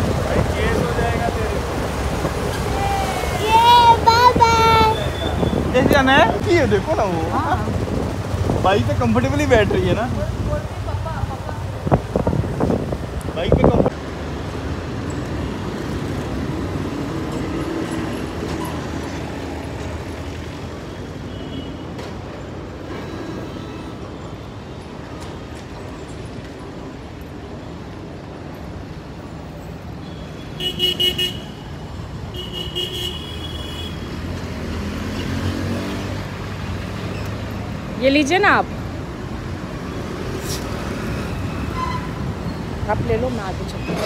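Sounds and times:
street traffic rumble: 0.0s - 44.0s
vehicle horn honking: 30.1s - 31.6s, 32.3s - 34.1s.

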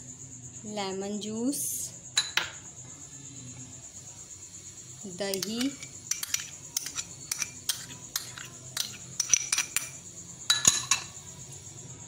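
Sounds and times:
glass clinking on ceramic bowl: 10.5s - 11.1s.

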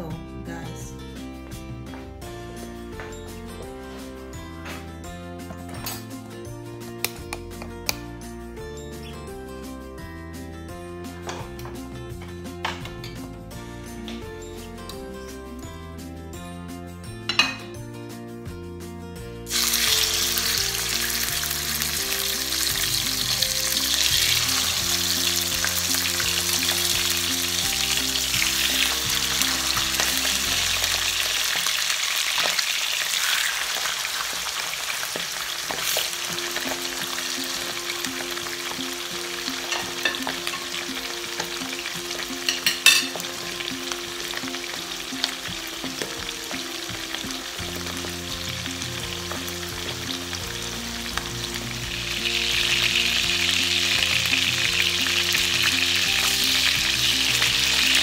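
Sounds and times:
meat sizzling in a frying pan: 19.5s - 58.0s.

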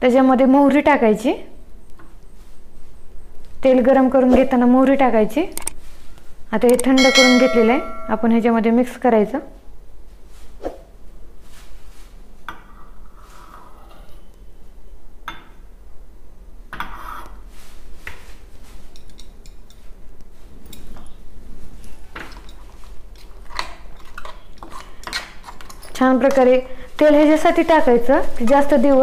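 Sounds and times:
metal spoon clinking bowls: 7.0s - 8.4s.

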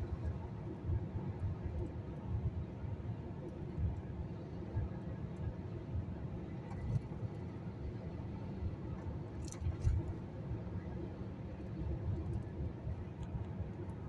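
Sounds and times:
car road and engine rumble: 0.0s - 14.0s.

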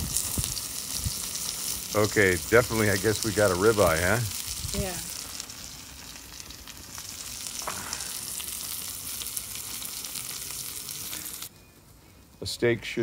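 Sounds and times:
steak sizzling on grill plate: 0.0s - 11.5s
fat burning in flare-up: 0.0s - 12.4s.

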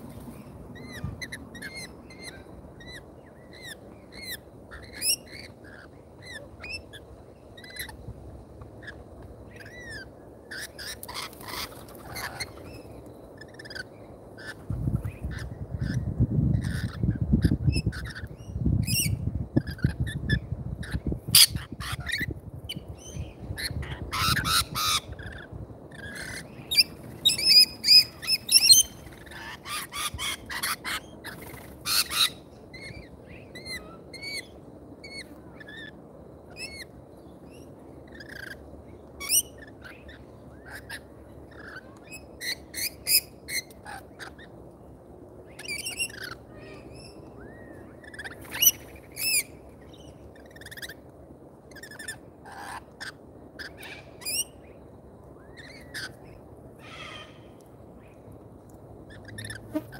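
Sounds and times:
bird chirps and squawks: 13.4s - 22.3s, 23.1s - 35.9s, 45.6s - 49.5s, 56.8s - 57.5s
shrill bird screeches: 56.8s - 57.5s.

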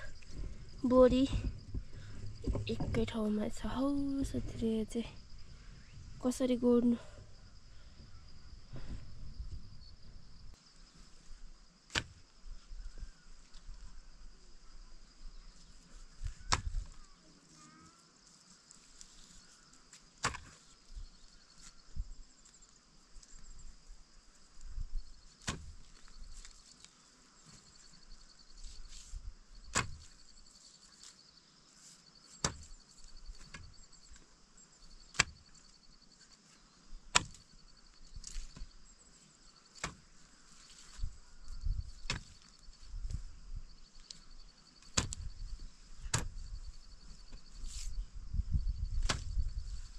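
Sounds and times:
insects chirring: 0.0s - 49.9s
sharp single knocks: 16.4s - 16.9s, 29.7s - 30.1s, 37.1s - 37.4s, 45.0s - 45.3s, 49.0s - 49.4s.

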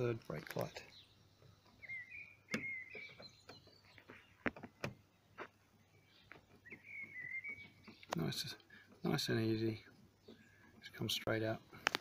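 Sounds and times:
bolt squeaking: 1.8s - 3.8s.

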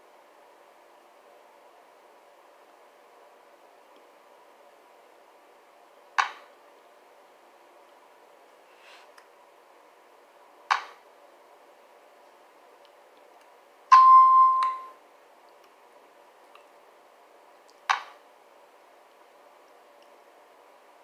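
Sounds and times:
electronic chime: 13.9s - 15.0s.

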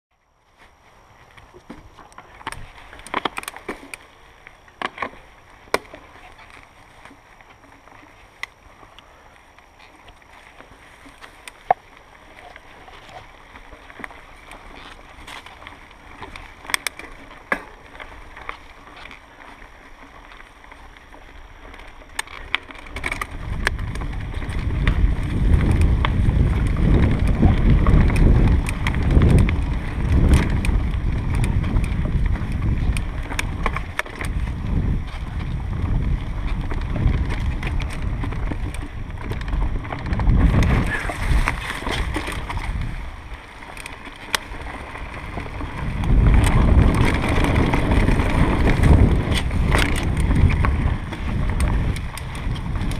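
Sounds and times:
bike tyres on leaves and dirt: 0.1s - 52.9s
bike clicks and rattles: 0.5s - 52.9s
wind buffeting microphone: 22.8s - 52.9s.

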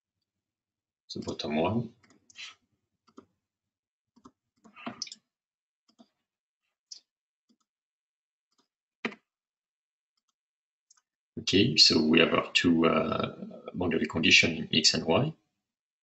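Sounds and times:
computer mouse clicks: 4.2s - 5.2s.

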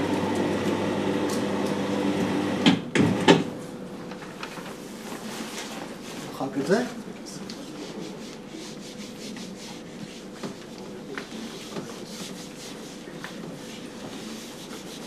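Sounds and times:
eraser rubbing on whiteboard: 7.5s - 15.0s.

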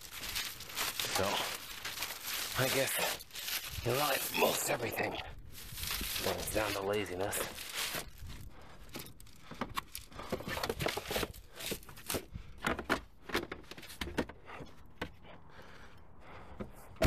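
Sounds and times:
plastic bags crinkling: 0.0s - 12.2s.

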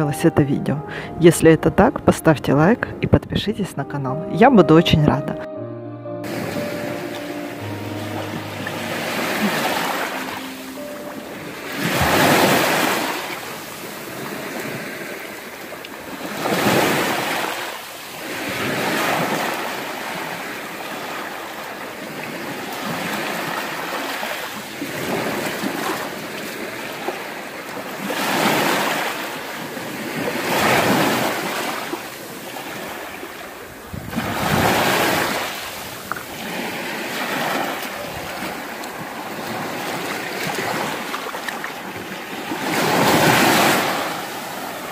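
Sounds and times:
waves washing over shells: 11.8s - 44.9s.

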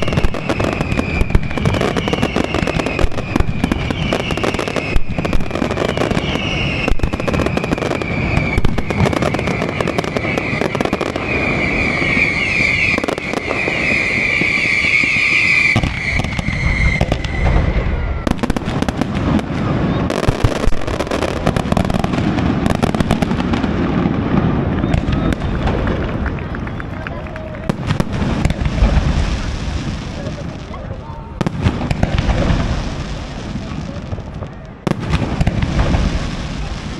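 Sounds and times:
high shrill whistle: 0.0s - 18.4s
fireworks bangs and crackling: 0.0s - 36.9s.

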